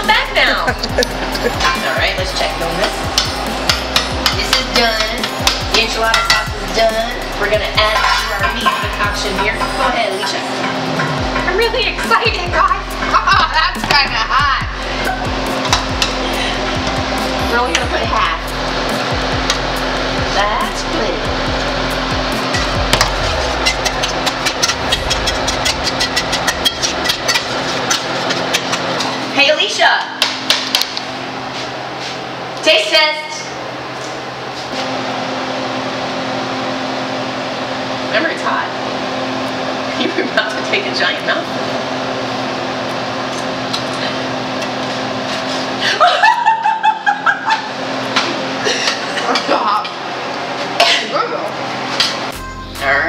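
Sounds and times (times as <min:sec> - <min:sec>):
low hum: 0:00.0 - 0:29.6
woman laughing heartily: 0:00.4 - 0:02.0, 0:14.8 - 0:15.5, 0:45.8 - 0:47.8.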